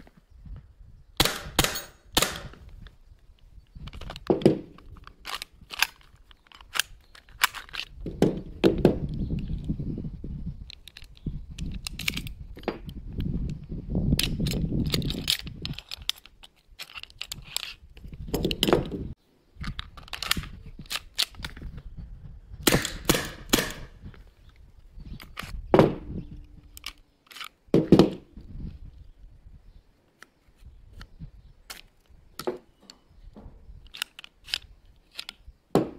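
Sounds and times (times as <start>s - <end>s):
air pistol shots popping: 1.2s - 2.6s, 22.6s - 24.0s
pistol parts clicking and clacking: 1.2s - 2.7s, 3.9s - 8.8s, 10.7s - 12.8s, 14.2s - 19.0s, 19.6s - 21.6s, 22.7s - 24.0s, 26.7s - 28.2s, 31.7s - 33.0s, 33.8s - 35.9s.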